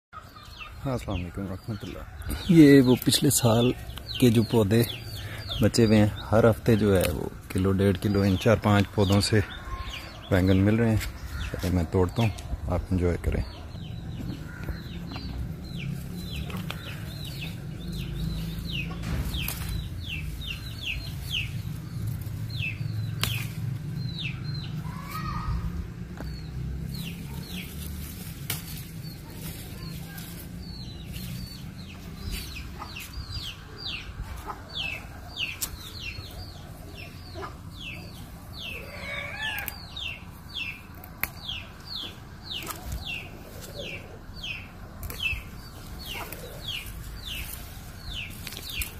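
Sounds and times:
chicks peeping: 0.2 - 48.9
rustling among plants: 14.1 - 48.9.

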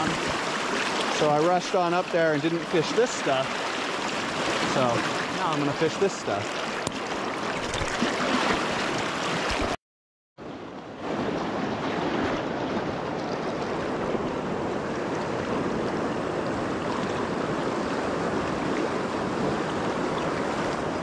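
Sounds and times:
river current rushing: 0.0 - 9.8.

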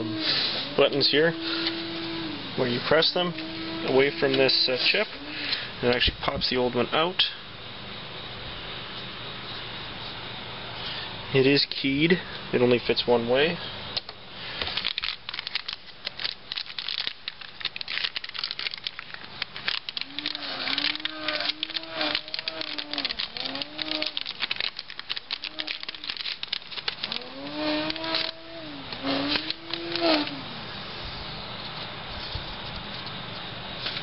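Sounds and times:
low wavering hum: 0.0 - 34.0
plastic bag crinkling: 14.6 - 30.5.

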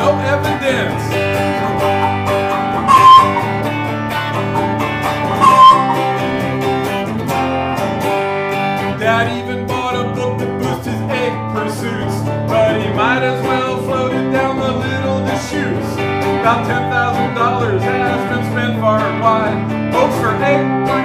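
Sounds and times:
electric guitar strumming chords: 0.0 - 21.0
person singing: 9.0 - 21.0.

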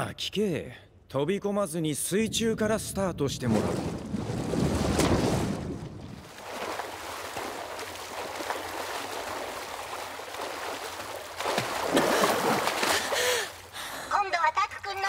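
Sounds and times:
swimmers splashing water: 3.5 - 15.0
breathy gasps: 12.0 - 14.2.

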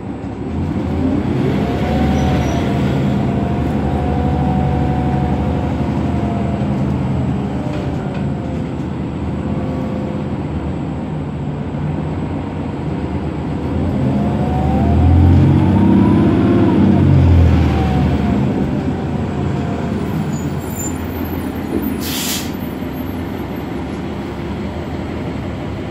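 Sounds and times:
bus engine and transmission whine: 0.0 - 25.9
compressed air hiss: 22.0 - 22.5.

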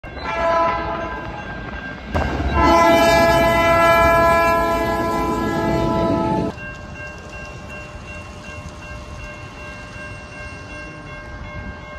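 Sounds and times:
locomotive air horn: 0.3 - 1.0, 2.6 - 6.5.

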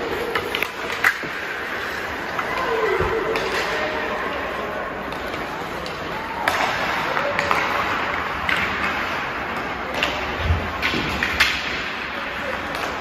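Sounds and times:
arena noise: 0.0 - 13.0
hockey sticks clacking on puck: 0.0 - 13.0.

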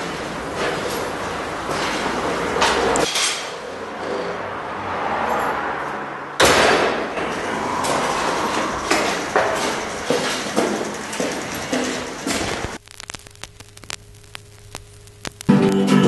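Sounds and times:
loud bang: 6.4 - 7.3
bicycle metal clatter: 6.4 - 12.8.

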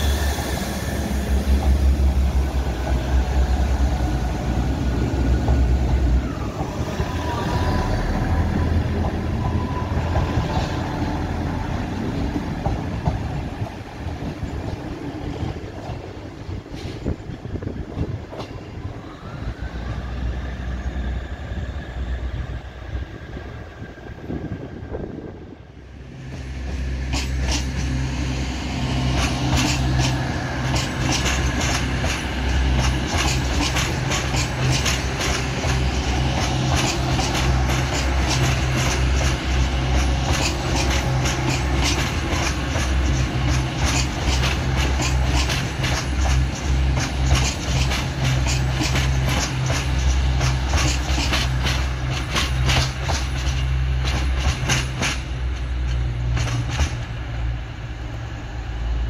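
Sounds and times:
train wheels clicking over rail joints: 8.9 - 18.8, 26.2 - 28.2, 28.9 - 57.8.

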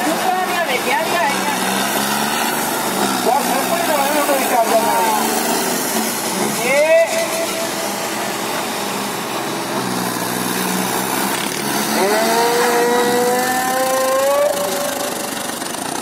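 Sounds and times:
tractor diesel engine revving: 0.0 - 16.0.

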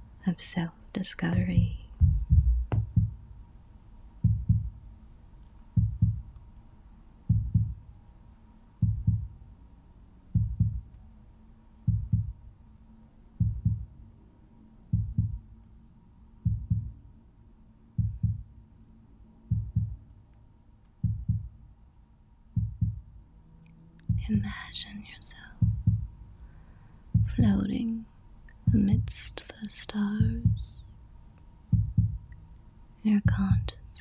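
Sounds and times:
heartbeat thumps: 1.3 - 3.3, 4.2 - 4.8, 5.7 - 6.4, 7.3 - 7.9, 8.8 - 9.4, 10.3 - 10.9, 11.9 - 12.4, 13.4 - 14.0, 14.9 - 15.5, 16.4 - 17.0, 18.0 - 18.5, 19.5 - 20.0, 21.0 - 21.6, 22.6 - 23.1, 24.0 - 24.7, 25.4 - 26.2, 27.1 - 27.8, 28.6 - 29.3, 30.2 - 30.9, 31.7 - 32.3, 33.1 - 33.8.

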